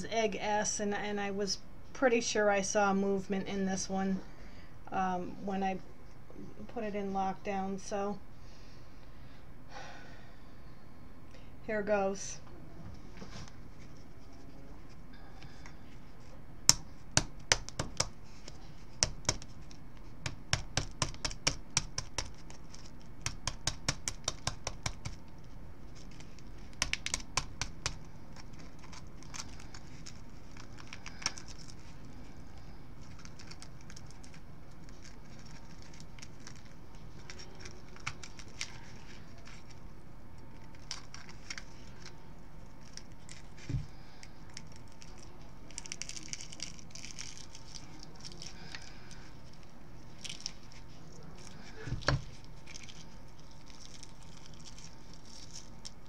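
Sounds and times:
knife tapping on eggshell: 23.3s - 25.2s.

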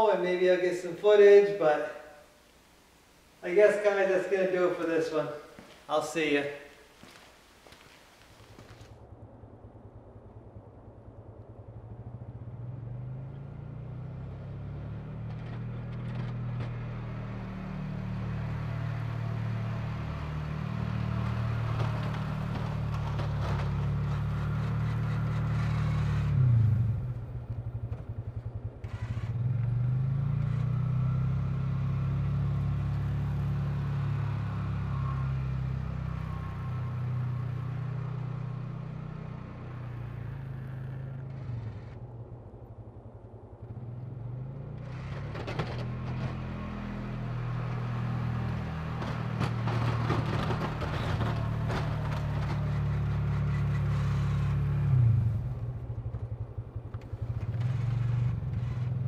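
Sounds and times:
utility vehicle engine running: 7.0s - 59.0s
plow blade scraping and clattering: 15.2s - 17.1s, 20.5s - 26.7s, 44.8s - 55.3s, 56.8s - 59.0s.

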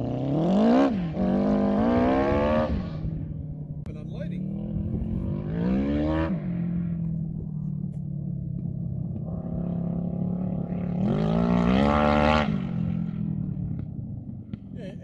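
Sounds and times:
quad bike engine revving: 0.0s - 3.3s, 4.2s - 7.0s, 9.5s - 13.8s.

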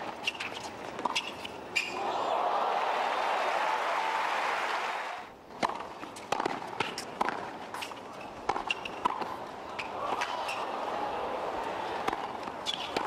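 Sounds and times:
shoes squeaking on court: 0.0s - 2.0s, 5.6s - 10.7s, 12.1s - 13.0s
crowd applauding: 2.0s - 5.3s
tennis ball struck by rackets: 5.6s - 10.6s, 12.0s - 13.0s.

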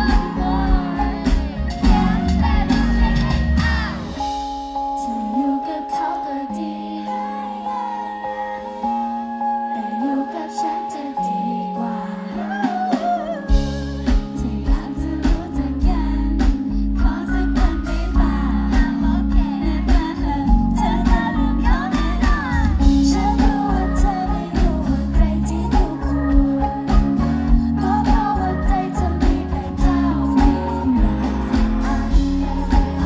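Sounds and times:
heavy bass line and beat: 0.0s - 4.4s, 13.6s - 33.0s
pop music over sound system: 0.0s - 33.0s
woman singing: 0.0s - 33.0s.

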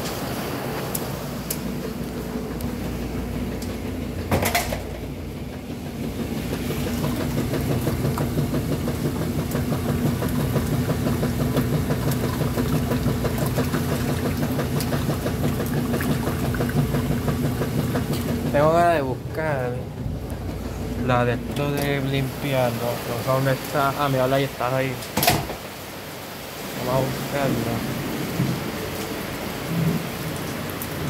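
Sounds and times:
washing machine churning: 0.0s - 31.0s.

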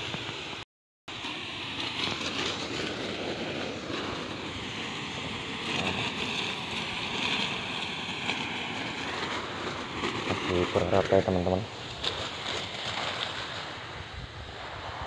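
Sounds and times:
spray gun hissing: 0.0s - 10.8s.

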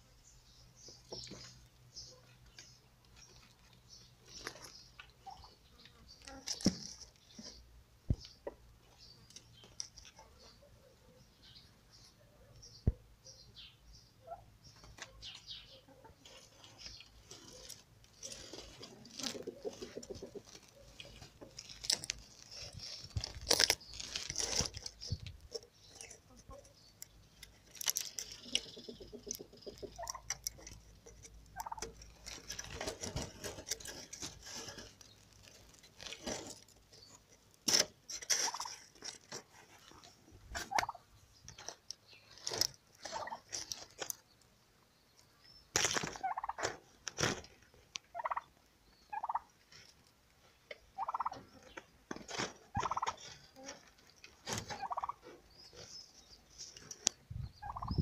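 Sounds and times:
clicks and rustles: 0.8s - 10.7s, 16.2s - 44.5s, 51.4s - 57.3s
turkey calling: 28.5s - 30.2s, 31.6s - 31.9s, 40.7s - 41.0s, 46.2s - 46.6s, 48.1s - 48.5s, 49.1s - 49.5s, 51.0s - 51.4s, 52.8s - 53.2s, 54.7s - 55.4s, 57.6s - 58.0s.

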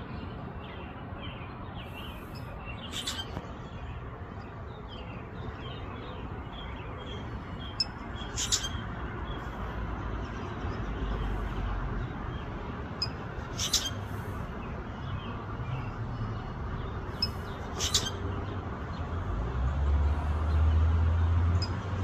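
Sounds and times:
low traffic rumble: 0.0s - 22.0s
outdoor background noise: 0.0s - 22.0s
sharp bird chirps: 1.4s - 9.6s, 13.0s - 14.1s, 17.0s - 18.3s.

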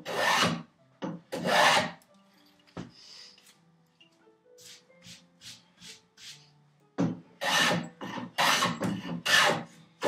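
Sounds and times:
hand plane shaving wood: 0.0s - 0.6s, 1.4s - 2.0s, 7.4s - 9.8s.

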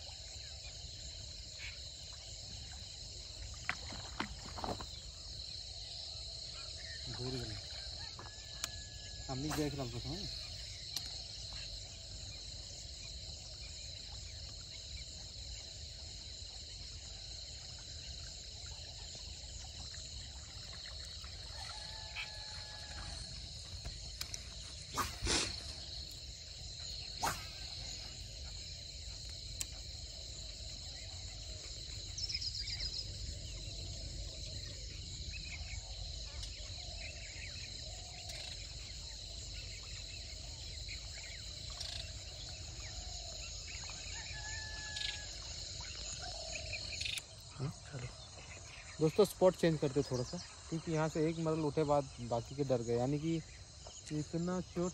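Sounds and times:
crickets trilling: 0.0s - 54.9s.

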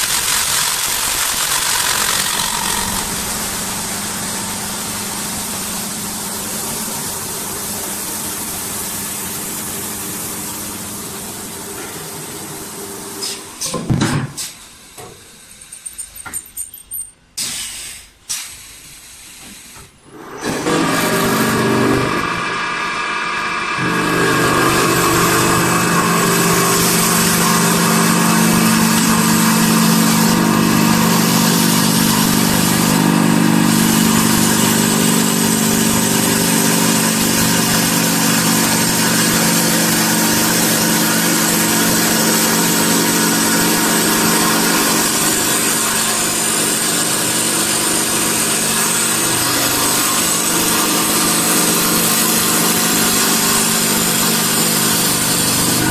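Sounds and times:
lathe motor hum: 0.0s - 13.2s, 20.1s - 55.9s
sanding hiss: 17.4s - 20.0s.

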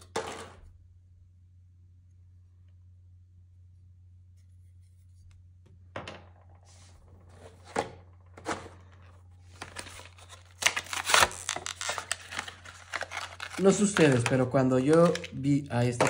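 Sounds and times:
packaging crinkling and rustling: 7.3s - 16.0s.

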